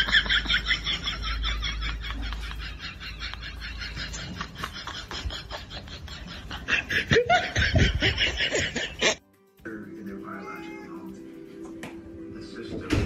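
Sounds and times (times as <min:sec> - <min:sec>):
person laughing in rapid bursts: 0:00.0 - 0:09.2.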